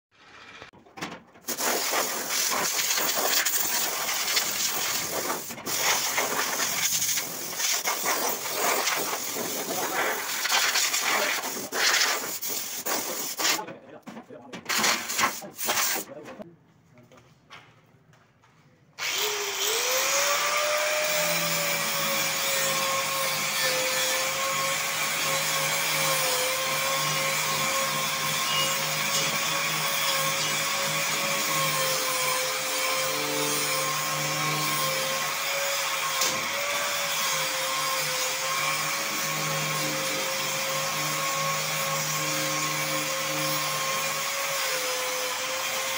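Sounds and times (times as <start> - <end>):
angle grinder grinding metal: 19.0 - 45.9.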